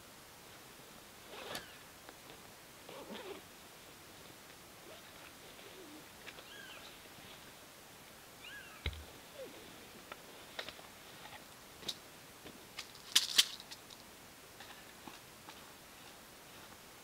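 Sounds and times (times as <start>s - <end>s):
camping gear clicks and rustles: 1.3s - 3.4s, 4.5s - 7.0s, 10.0s - 16.8s
bird chirping: 5.8s - 7.0s, 8.4s - 9.6s.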